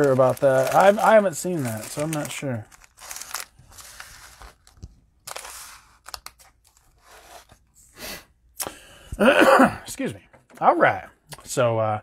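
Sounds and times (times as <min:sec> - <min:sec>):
cellophane packs crinkling: 0:00.0 - 0:07.5.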